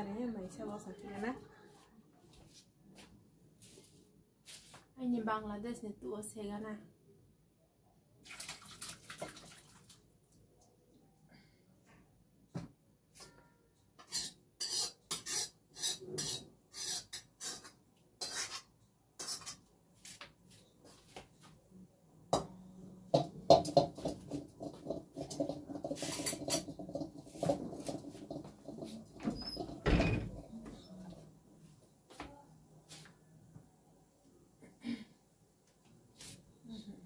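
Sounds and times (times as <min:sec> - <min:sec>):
metal cookware scraping and clanking: 0:14.0 - 0:19.6, 0:24.2 - 0:29.0
rubbing and handling noise: 0:24.2 - 0:29.2.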